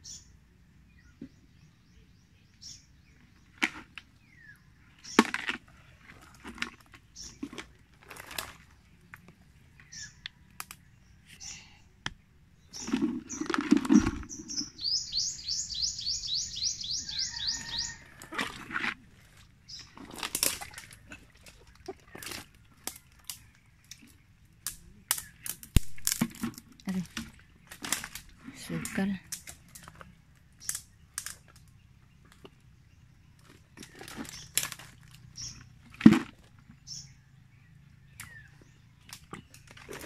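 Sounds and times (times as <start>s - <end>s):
bird trilling: 12.7s - 18.3s.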